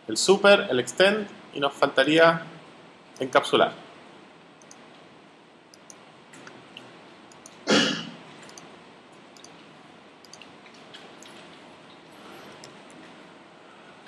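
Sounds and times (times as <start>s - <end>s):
computer mouse clicks: 4.6s - 4.8s, 5.7s - 7.6s, 8.4s - 8.7s, 9.4s - 9.6s, 10.2s - 11.6s, 12.4s - 13.1s.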